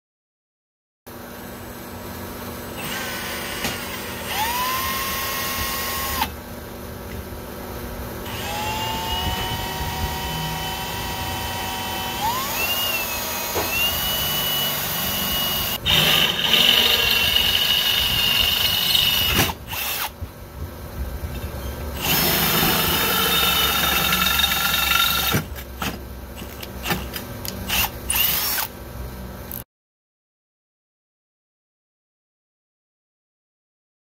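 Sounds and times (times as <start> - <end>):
cordless drill boring into steel: 2.8 - 6.3, 8.3 - 20.1, 22.0 - 25.4, 27.7 - 28.7.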